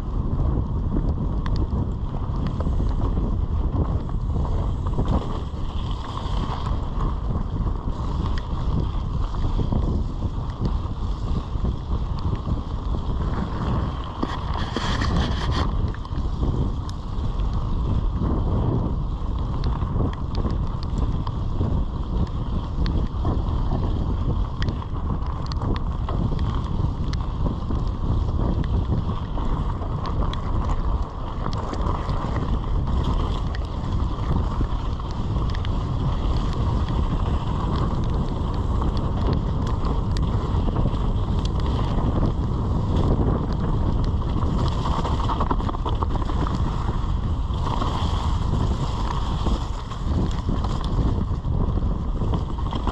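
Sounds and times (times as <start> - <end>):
wind buffeting microphone: 0.0 - 52.9
tyres rolling over gravel: 0.2 - 52.9
bike knocks and rattles: 22.8 - 52.9.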